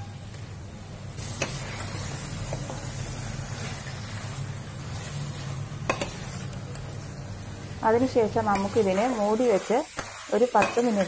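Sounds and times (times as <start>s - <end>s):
chicken sizzling in a pan: 1.2s - 11.0s
spoon scraping and clinking on pan: 5.9s - 6.5s.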